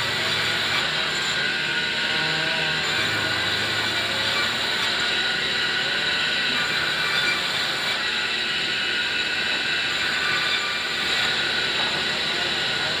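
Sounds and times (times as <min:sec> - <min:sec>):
band saw cutting a log: 0:00.0 - 0:13.0.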